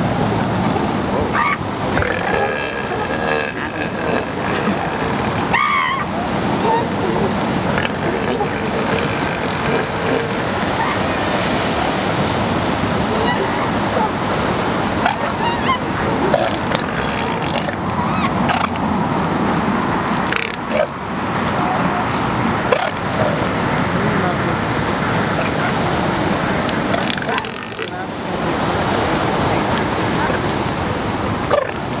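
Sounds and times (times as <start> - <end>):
outdoor background noise: 0.0 - 32.0.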